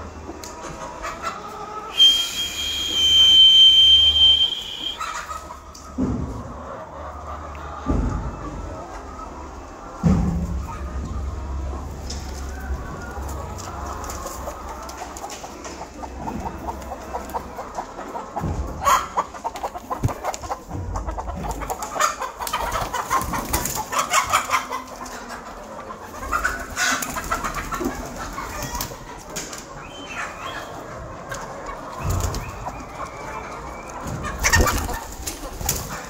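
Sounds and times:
hens clucking: 0.0 - 36.0
wings flapping and scuffling: 21.3 - 24.5, 31.9 - 36.0.

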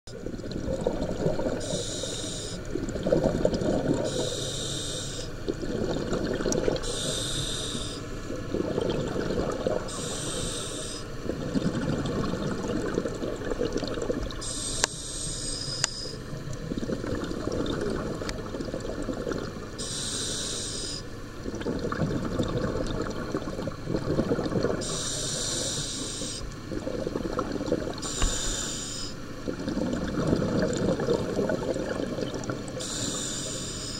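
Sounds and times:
exhaled air bubbling: 0.1 - 33.9
diver hissing inhales: 1.6 - 2.7, 4.1 - 5.4, 6.8 - 8.1, 9.9 - 11.2, 14.4 - 16.2, 19.8 - 21.1, 24.8 - 26.5, 28.0 - 29.2, 32.8 - 33.9.

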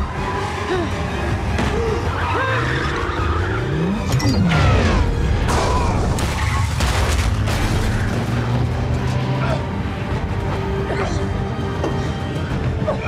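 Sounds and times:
film music: 0.0 - 13.0
car engine revving: 7.2 - 10.8.

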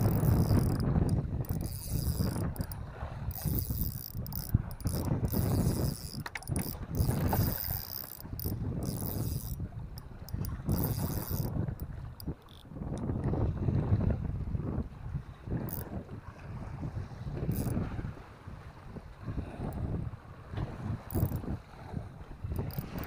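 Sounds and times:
fishing reel ratcheting: 0.0 - 13.1, 15.6 - 15.9, 17.5 - 17.8, 21.0 - 21.6, 22.4 - 23.0.

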